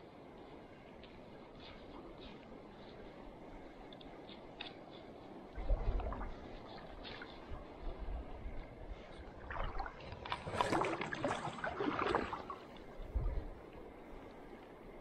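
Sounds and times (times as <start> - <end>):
water splashing and sloshing: 4.3 - 15.0.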